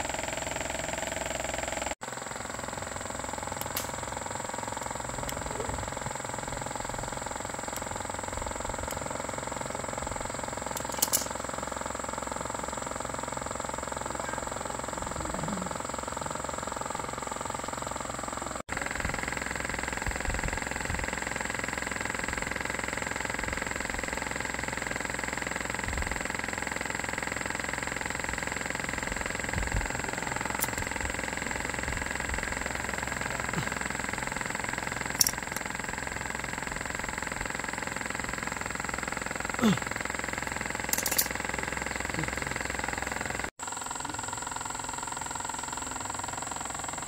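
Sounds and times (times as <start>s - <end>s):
machine humming with high whine: 0.0s - 47.0s
short clicks: 10.8s - 11.4s, 35.2s - 35.6s, 40.9s - 41.4s.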